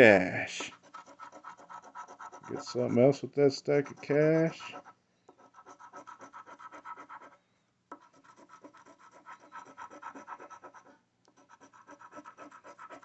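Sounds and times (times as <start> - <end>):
coin scratching lottery ticket: 0.8 - 3.0, 8.1 - 13.0.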